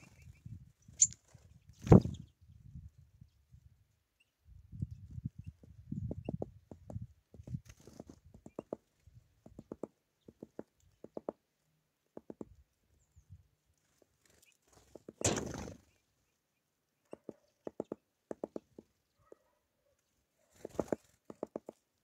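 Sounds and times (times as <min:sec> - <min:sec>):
woodpecker tapping on wood: 0:05.6 - 0:07.1, 0:08.2 - 0:11.4, 0:12.1 - 0:12.6, 0:14.9 - 0:15.4, 0:17.0 - 0:19.5, 0:20.6 - 0:21.8.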